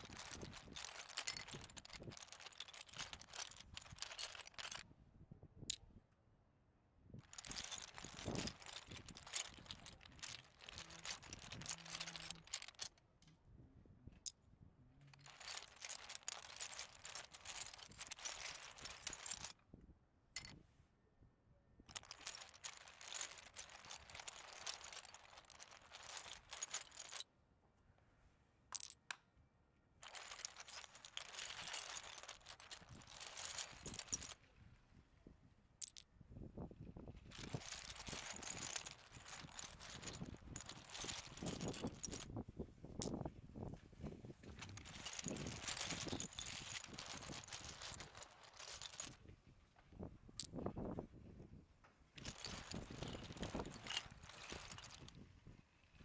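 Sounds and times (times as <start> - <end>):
toy train wheels rattling on track: 0.0 - 4.8, 7.3 - 13.0, 15.2 - 19.5, 21.9 - 27.2, 30.0 - 34.4, 37.4 - 42.2, 44.6 - 49.1.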